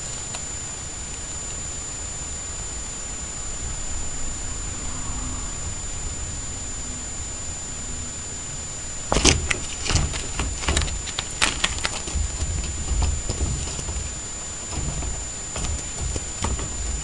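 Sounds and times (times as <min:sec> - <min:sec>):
dull thumps: 0:09.1 - 0:17.0
wire crate rattling and clinking: 0:09.1 - 0:17.0.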